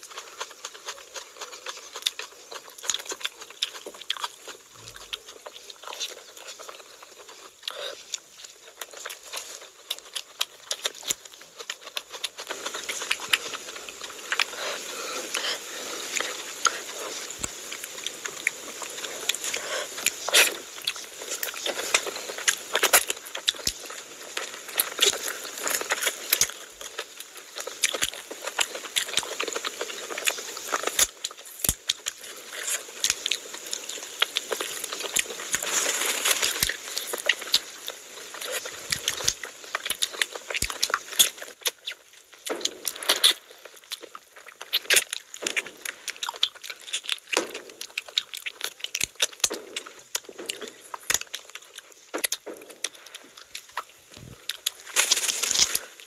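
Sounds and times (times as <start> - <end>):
mouth clicks and crackles: 0.0 - 56.0
wet chewing: 0.0 - 56.0.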